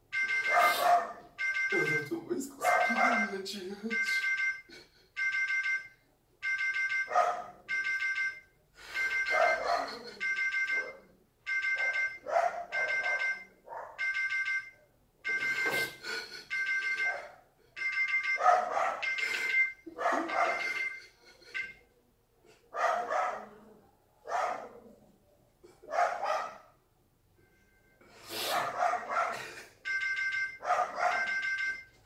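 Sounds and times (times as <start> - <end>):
phone ringtone beeping: 0.0 - 21.9, 29.8 - 32.0.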